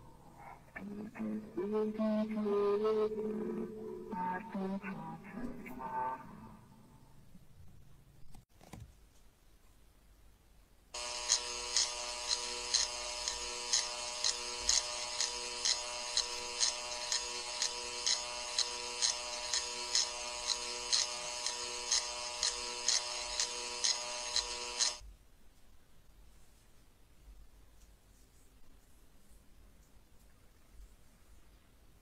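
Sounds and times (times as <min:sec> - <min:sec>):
pulsing electronic buzzing drone: 0:11.0 - 0:25.0.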